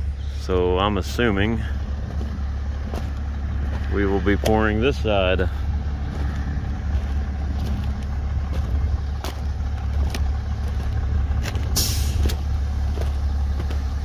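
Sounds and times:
diesel truck engine idling: 0.0s - 14.0s
footsteps on foam panels: 1.7s - 4.6s, 5.5s - 14.0s
short hiss: 11.8s - 12.2s.

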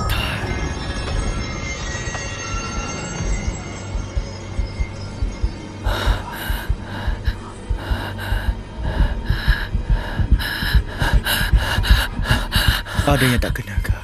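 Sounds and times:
faint low music drone: 0.0s - 14.0s
racing heartbeat thumping: 2.5s - 14.0s
quick panicked breaths: 5.8s - 13.6s.

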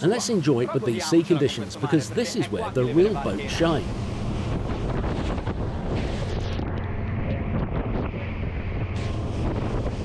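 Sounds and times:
boat diesel engines droning: 0.0s - 10.0s
water rushing off hull: 1.5s - 10.0s
wind on microphone: 3.2s - 10.0s.

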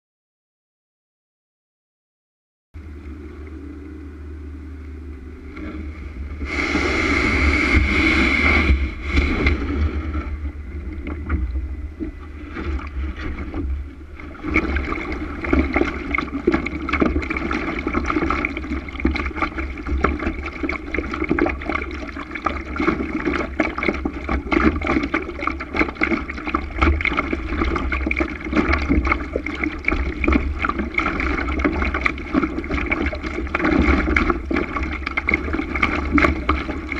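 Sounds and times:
water rushing along hull: 2.8s - 36.9s
wind buffeting microphone: 2.8s - 36.9s
small water splashes: 10.9s - 36.9s.

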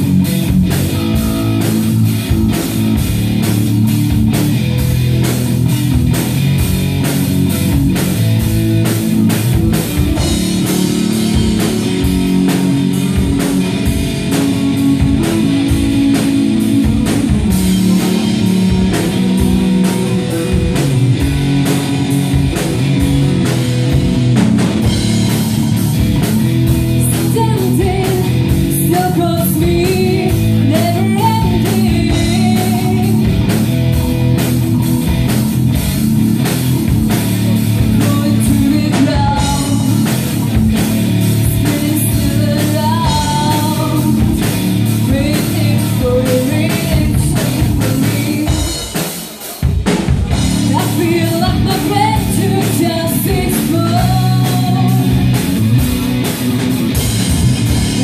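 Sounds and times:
bass guitar: 0.0s - 58.0s
distorted electric guitar: 0.0s - 58.0s
drum kit beat: 0.0s - 58.0s
woman singing: 27.0s - 33.3s, 37.9s - 40.1s, 41.4s - 48.9s, 50.6s - 55.2s.

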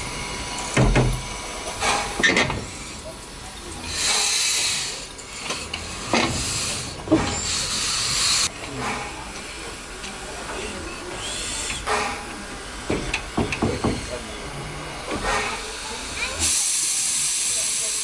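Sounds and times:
steam locomotive hissing steam: 0.0s - 18.0s
sharp clanks and knocks: 0.7s - 2.8s, 5.4s - 7.5s, 11.8s - 14.2s.

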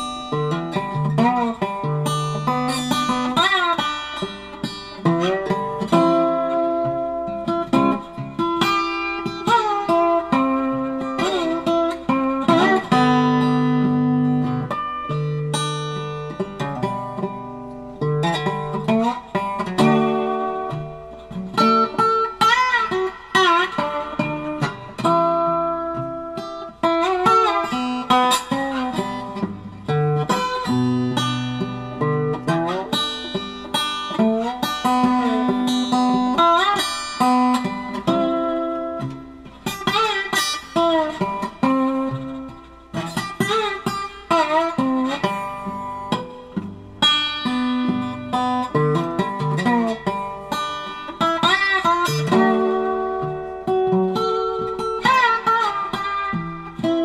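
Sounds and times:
acoustic guitar tune: 0.0s - 57.0s.

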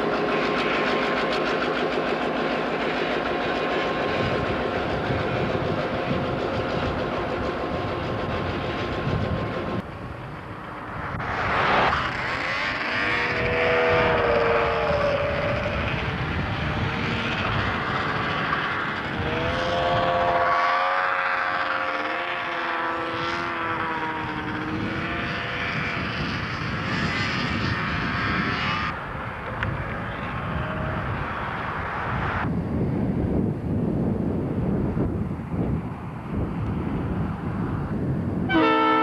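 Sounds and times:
diesel locomotive running past: 0.0s - 39.0s
road vehicle whooshing by: 8.8s - 33.5s
locomotive horn blast: 12.2s - 16.0s, 19.2s - 24.0s, 38.5s - 39.0s.

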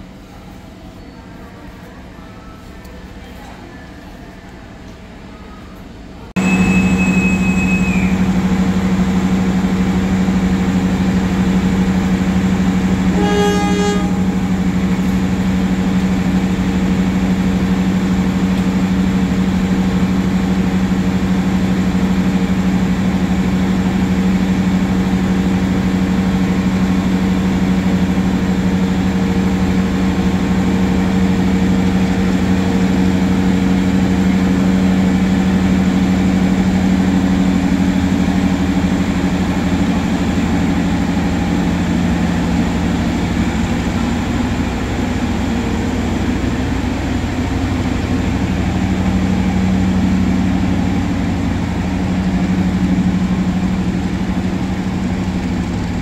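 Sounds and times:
diesel train engine droning: 0.0s - 56.0s
high tone: 6.4s - 8.2s.

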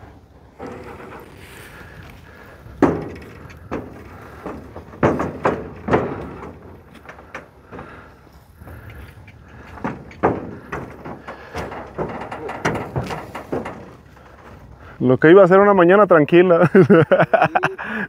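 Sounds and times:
hooves knocking in metal trailer: 0.6s - 15.0s.

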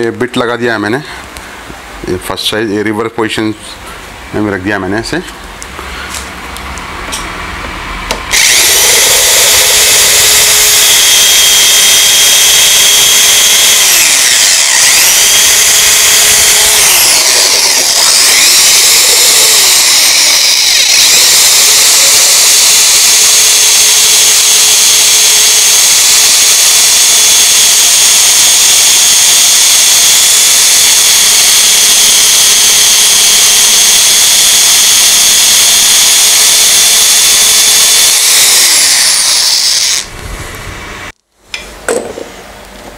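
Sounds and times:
electric drill whining: 8.1s - 40.2s.

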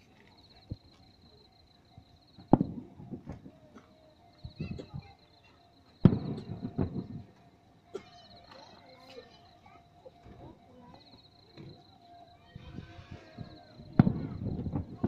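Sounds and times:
crackles and echoes: 0.0s - 15.0s
distant firework shells bursting: 2.4s - 3.5s, 6.0s - 7.3s, 13.8s - 15.0s.

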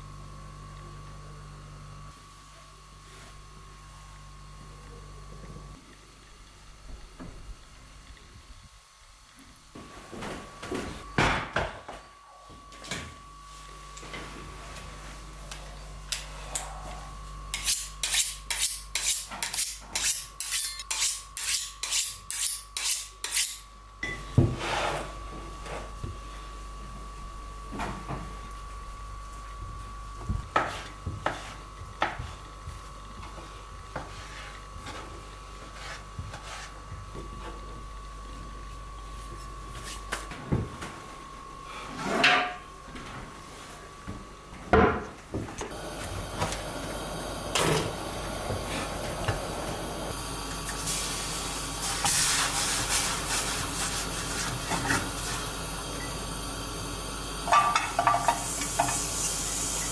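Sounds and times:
fat sizzling in frying pan: 45.8s - 59.9s.

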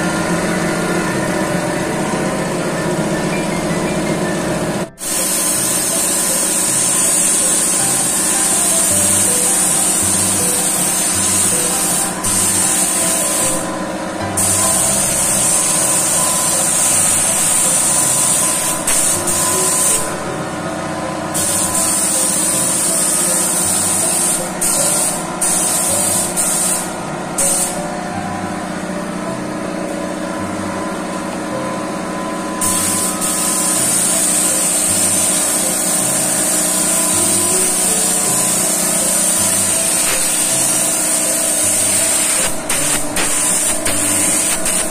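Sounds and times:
steady hum: 0.0s - 44.9s
paint spray gun hissing: 5.0s - 20.2s, 21.3s - 27.9s, 32.6s - 44.9s.

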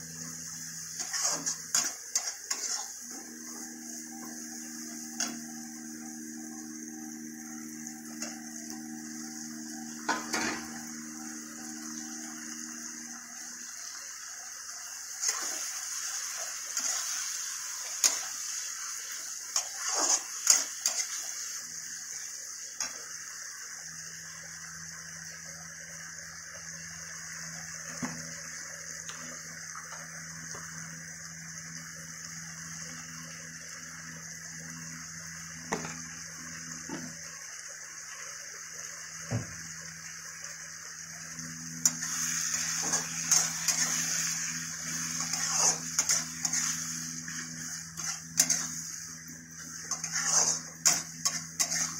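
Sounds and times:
tomatoes sizzling in oil: 0.0s - 51.9s
metal ladle scraping pan: 1.0s - 2.9s, 45.1s - 47.4s, 48.0s - 48.8s, 49.9s - 51.9s.

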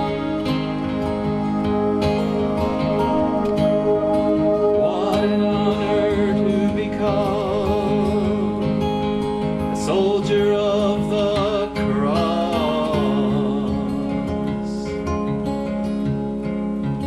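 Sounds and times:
strummed acoustic guitar: 0.0s - 17.0s
man singing into microphone: 4.8s - 9.0s, 9.7s - 15.1s.

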